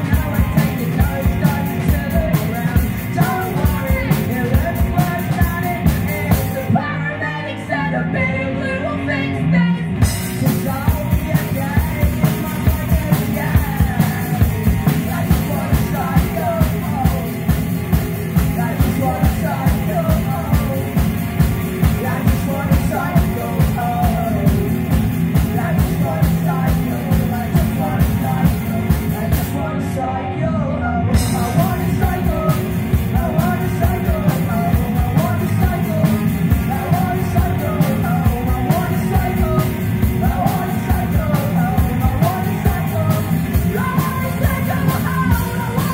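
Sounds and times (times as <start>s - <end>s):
steady drum beat: 0.0s - 6.7s, 10.0s - 29.6s, 31.1s - 45.9s
electric guitar: 0.0s - 45.9s
person singing: 0.0s - 45.9s.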